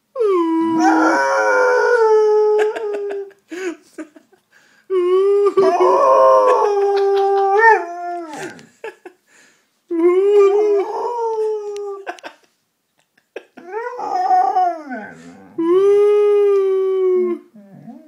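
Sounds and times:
person howling: 0.2s - 3.3s, 4.9s - 8.7s, 9.9s - 12.1s, 13.6s - 18.0s
dog howling: 0.3s - 3.2s, 5.6s - 8.7s, 13.6s - 18.0s.

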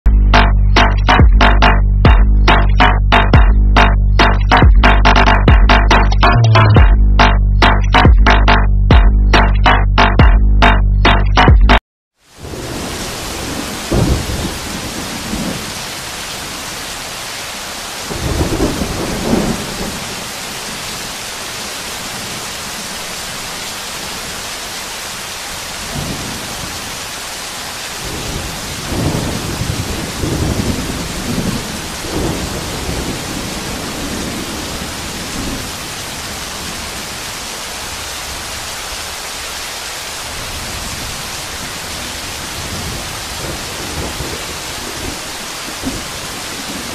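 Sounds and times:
heavy rain pouring: 0.3s - 8.6s, 12.2s - 46.9s
rolling thunder: 12.4s - 15.9s, 18.1s - 20.2s, 28.0s - 35.8s, 42.4s - 46.9s.

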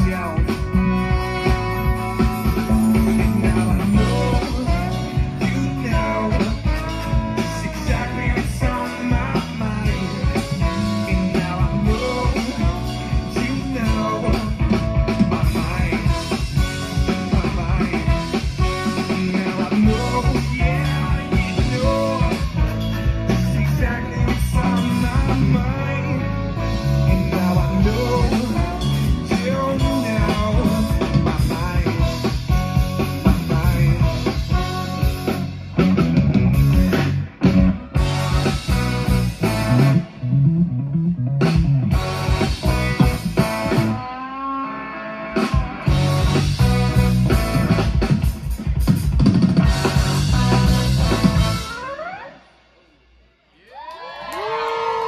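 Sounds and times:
trombone: 0.0s - 40.4s, 41.4s - 48.4s, 49.3s - 52.0s
drum kit: 0.0s - 52.0s
electric guitar: 0.0s - 52.8s
bass guitar: 0.0s - 55.0s
person singing: 2.9s - 32.4s.

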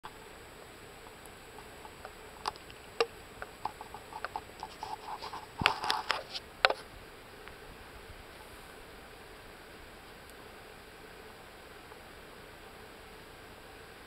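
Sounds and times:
light taps and clicks: 0.6s - 6.8s.

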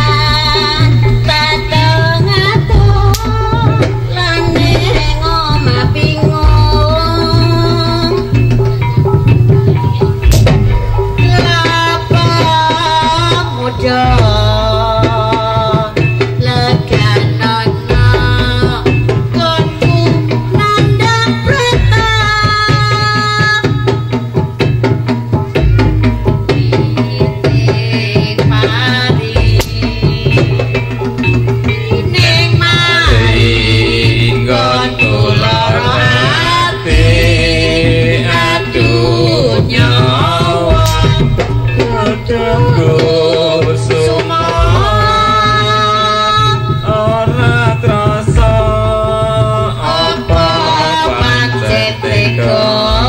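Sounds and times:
low drone: 0.0s - 15.3s, 33.0s - 46.1s
sliding melody line: 0.0s - 22.6s, 26.9s - 53.0s
fast hand drum strokes: 0.0s - 53.0s.

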